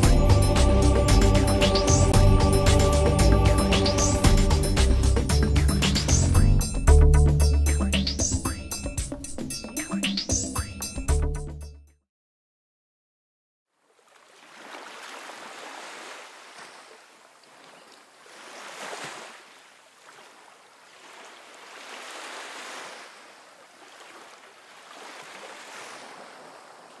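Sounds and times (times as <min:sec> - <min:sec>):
ocean surf breaking on beach: 0:20.2 - 0:27.0.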